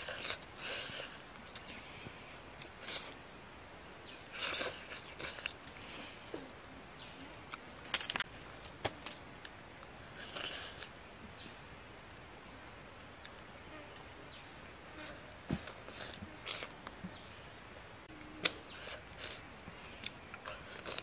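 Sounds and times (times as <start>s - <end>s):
mouth sounds of eating: 0.0s - 3.2s, 4.2s - 6.5s, 10.1s - 11.0s, 14.9s - 17.2s, 18.2s - 21.0s.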